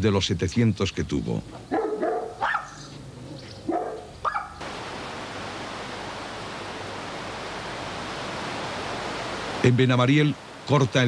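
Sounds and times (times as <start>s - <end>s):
dog barking: 1.7s - 2.9s, 3.6s - 4.6s
river water flowing: 4.6s - 11.0s.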